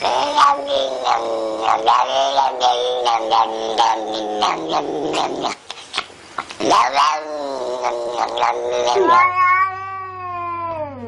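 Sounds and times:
cats yowling: 0:00.0 - 0:05.3, 0:06.7 - 0:11.0.

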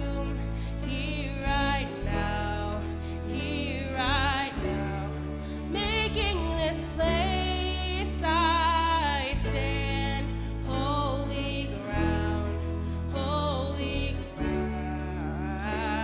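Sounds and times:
acoustic guitar: 0:00.0 - 0:16.0
sustained low bass notes: 0:00.0 - 0:16.0
woman singing: 0:00.0 - 0:16.0.

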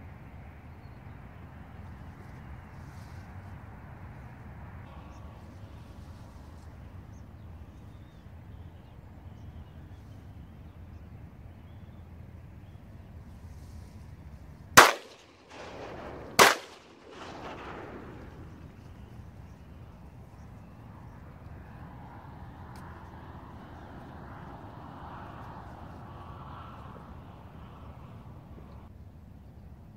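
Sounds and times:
low background rumble: 0:03.6 - 0:29.6
shotgun shots echoing: 0:14.8 - 0:18.8.

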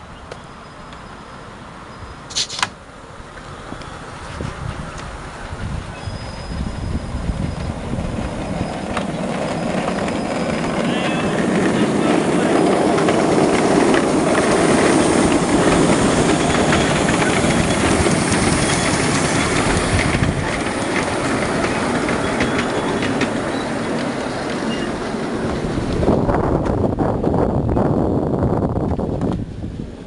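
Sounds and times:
train wagons rumbling: 0:03.2 - 0:30.0
wheels clicking over rail joints: 0:06.6 - 0:27.3.

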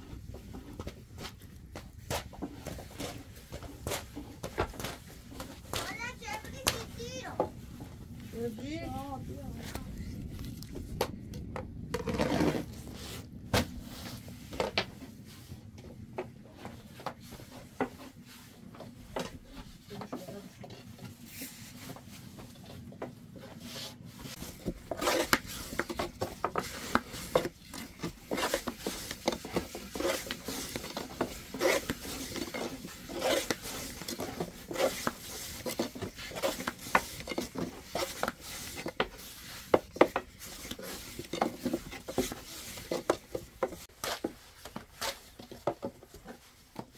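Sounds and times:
rolling pin rolling dough: 0:00.0 - 0:09.2, 0:16.2 - 0:46.9.

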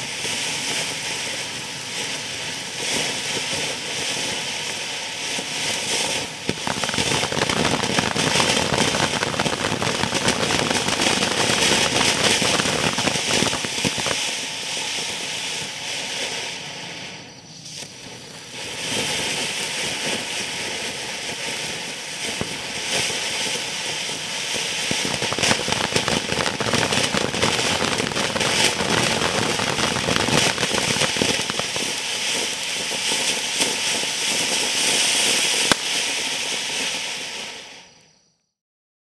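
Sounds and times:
firework fountain hissing and crackling: 0:00.0 - 0:38.4.

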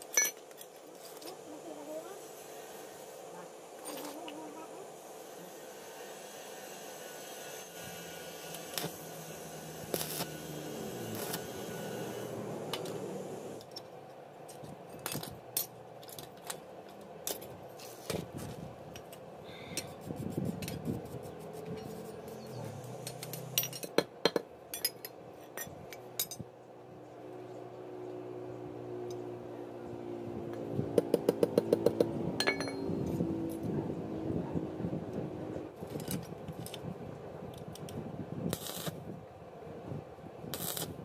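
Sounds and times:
metal tools clinking on steel: 0:00.0 - 0:01.4, 0:22.9 - 0:24.0, 0:24.7 - 0:26.4, 0:32.4 - 0:33.0.

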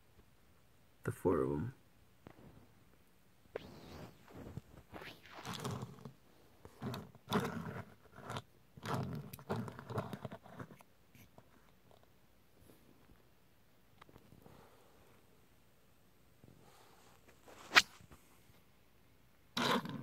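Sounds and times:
toy car scraping on cloth: 0:03.6 - 0:10.8, 0:19.6 - 0:20.0.

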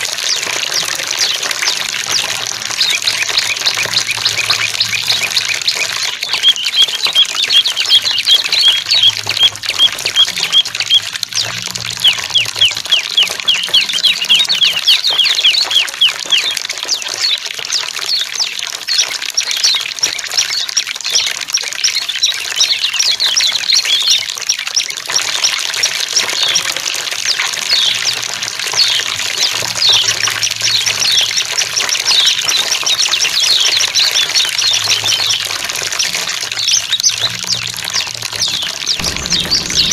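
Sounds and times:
running water: 0:00.0 - 0:39.9
songbirds chirping: 0:00.2 - 0:19.1.

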